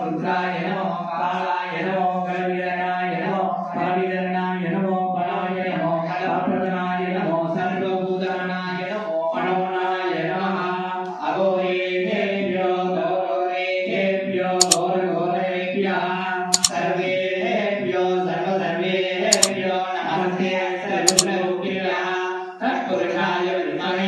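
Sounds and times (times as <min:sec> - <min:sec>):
sharp double click: 0:16.6 - 0:16.8, 0:19.3 - 0:19.6, 0:21.1 - 0:21.3.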